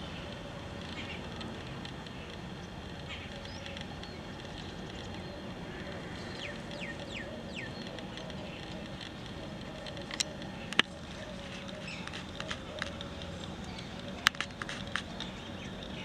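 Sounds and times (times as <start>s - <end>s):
steady background hiss: 0.0s - 16.0s
bird chirps: 10.5s - 16.0s.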